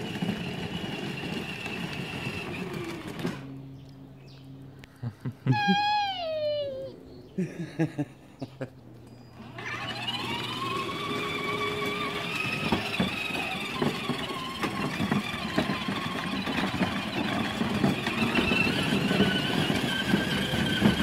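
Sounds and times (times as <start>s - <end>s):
electric toy car motor whining: 0.0s - 3.5s, 9.3s - 21.0s
plastic wheels rattling: 9.4s - 21.0s.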